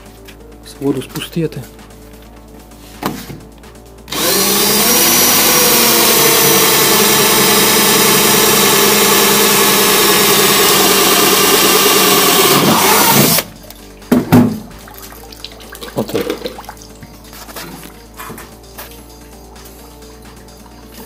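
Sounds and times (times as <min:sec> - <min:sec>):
electric drill boring through metal: 0:04.1 - 0:13.5.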